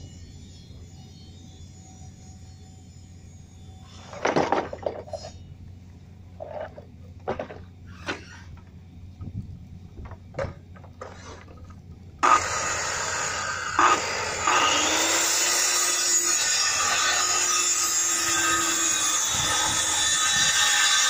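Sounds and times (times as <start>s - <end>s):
circular saw cutting plywood: 11.0s - 21.0s.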